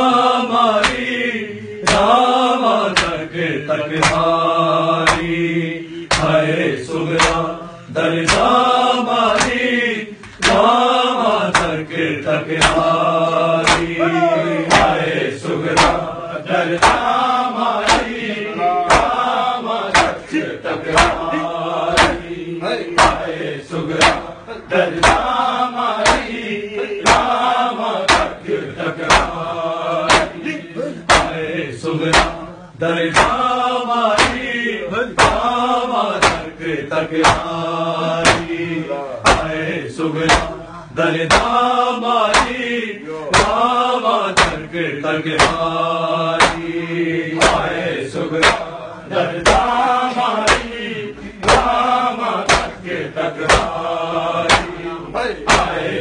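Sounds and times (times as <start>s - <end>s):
men chanting in unison: 0.0s - 56.0s
hands slapping bare chests: 0.8s - 1.1s, 1.8s - 2.2s, 2.9s - 3.2s, 3.9s - 4.4s, 5.0s - 5.4s, 6.1s - 6.4s, 7.1s - 7.5s, 8.2s - 8.6s, 9.3s - 9.6s, 10.2s - 10.8s, 11.5s - 11.8s, 12.6s - 16.1s, 16.7s - 17.2s, 17.8s - 18.2s, 18.9s - 19.2s, 19.9s - 22.4s, 23.0s - 24.3s, 24.9s - 25.4s, 26.0s - 26.3s, 27.0s - 27.4s, 28.1s - 28.4s, 29.0s - 29.4s, 30.0s - 30.4s, 31.0s - 31.4s, 32.1s - 32.4s, 33.1s - 33.5s, 34.1s - 34.5s, 35.2s - 36.5s, 37.1s - 37.6s, 38.2s - 38.6s, 39.2s - 39.6s, 40.2s - 40.6s, 41.3s - 41.6s, 42.3s - 42.6s, 43.3s - 43.6s, 44.3s - 44.7s, 45.3s - 45.7s, 46.4s - 46.7s, 47.4s - 48.8s, 49.4s - 49.8s, 50.4s - 50.8s, 51.4s - 51.8s, 52.4s - 52.8s, 53.4s - 53.8s, 54.4s - 54.8s, 55.4s - 55.8s.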